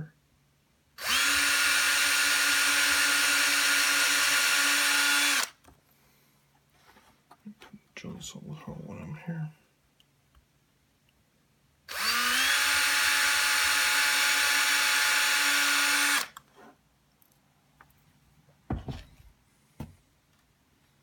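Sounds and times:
electric drill whining: 0:01.0 - 0:05.6, 0:11.9 - 0:16.4
short knocks: 0:18.7 - 0:19.2.

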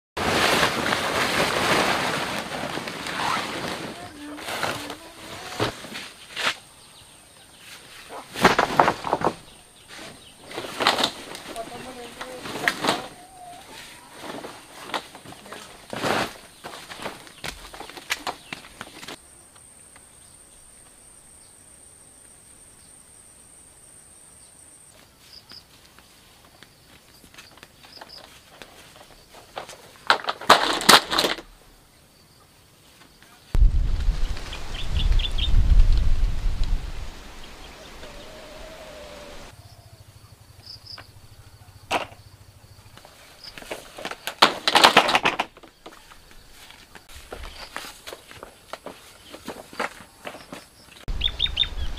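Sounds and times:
footsteps: 0:42.9 - 0:51.2.

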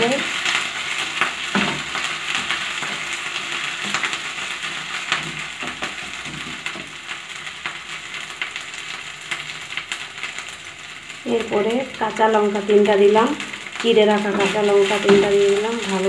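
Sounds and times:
onions sizzling in a frying pan: 0:00.0 - 0:16.0
wooden spatula scraping a pan: 0:14.2 - 0:16.0.

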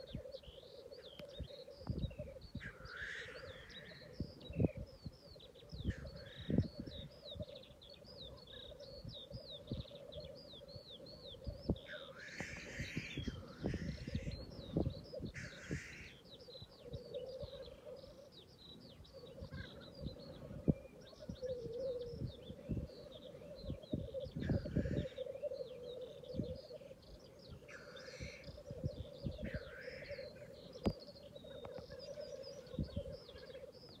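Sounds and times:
wind thumping microphone: 0:11.3 - 0:15.9, 0:19.4 - 0:25.2, 0:28.5 - 0:29.8, 0:32.7 - 0:33.4.

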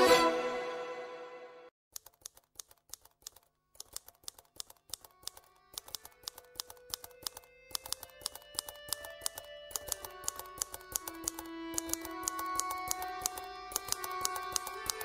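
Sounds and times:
rapid irregular clicks: 0:01.9 - 0:15.0
soft background music: 0:05.2 - 0:15.0.

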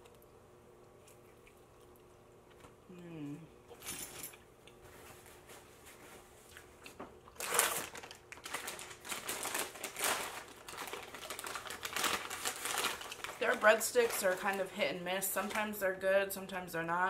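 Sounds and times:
paper bag crinkling: 0:07.3 - 0:15.8.

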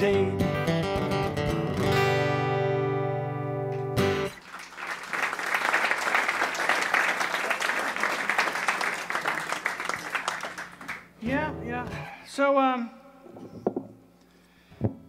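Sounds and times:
acoustic guitar chord ringing: 0:00.1 - 0:04.3
audience applause: 0:04.3 - 0:11.1.

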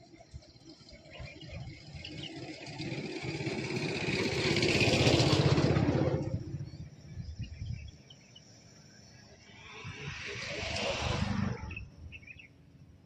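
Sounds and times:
vehicle engine passing by: 0:01.5 - 0:07.0, 0:09.4 - 0:12.4.

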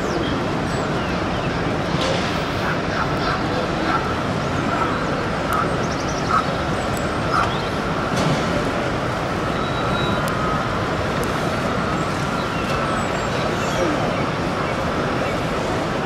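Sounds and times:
indistinct crowd noise: 0:00.0 - 0:16.0.

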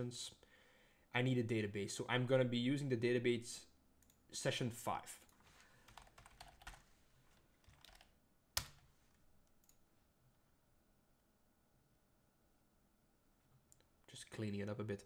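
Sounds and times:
typing on a computer keyboard: 0:05.9 - 0:06.8, 0:07.6 - 0:08.8.

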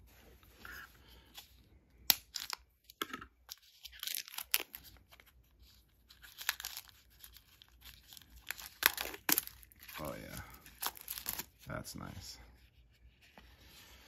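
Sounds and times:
plastic wrapping crinkling and tearing: 0:03.5 - 0:11.7.

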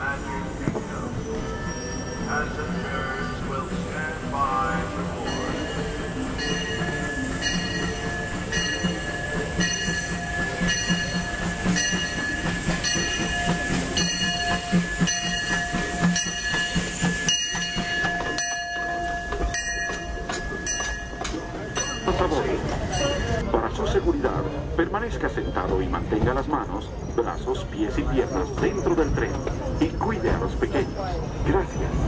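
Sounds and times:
steam train running: 0:00.0 - 0:32.0
locomotive bell ringing: 0:00.4 - 0:23.5.

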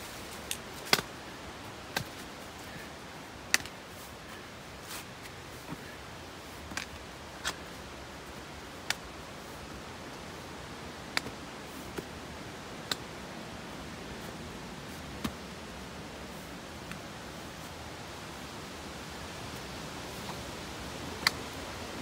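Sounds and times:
steady hiss: 0:00.0 - 0:22.0
steps clicking on rock: 0:00.3 - 0:10.2.

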